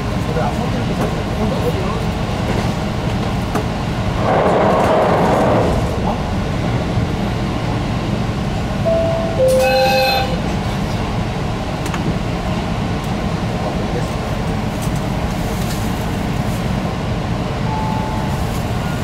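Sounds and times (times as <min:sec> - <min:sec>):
diesel railcar rumbling on rails: 0:00.0 - 0:19.0
two-note tone: 0:08.9 - 0:10.4.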